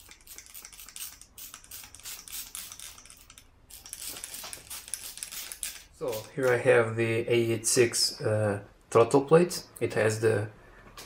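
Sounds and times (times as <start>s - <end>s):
spray bottle hissing: 0.0s - 6.6s.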